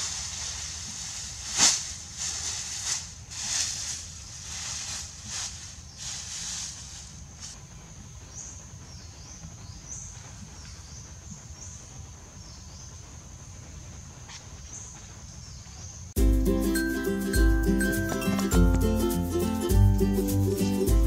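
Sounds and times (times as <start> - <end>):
straw rustling: 0.0 - 7.7, 16.3 - 20.2.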